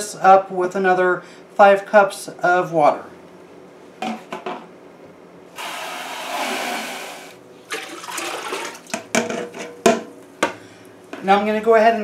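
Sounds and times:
water pouring into metal pot: 0:07.7 - 0:08.9.

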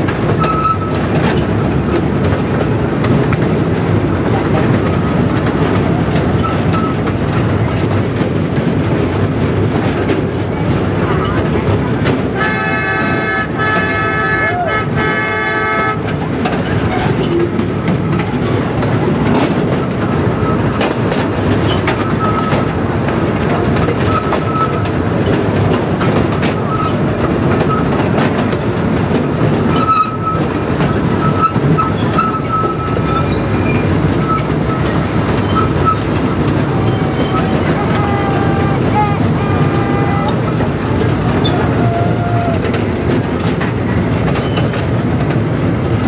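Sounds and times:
clicks from rails: 0:00.0 - 0:14.1, 0:16.0 - 0:46.0
model train rumbling: 0:00.0 - 0:46.0
train horn: 0:12.4 - 0:16.1, 0:36.8 - 0:40.7.

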